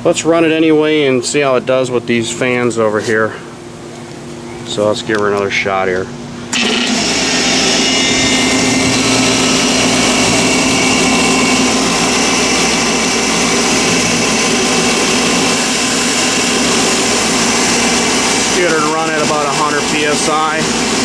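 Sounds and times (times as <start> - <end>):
air compressor running: 6.2 - 21.0.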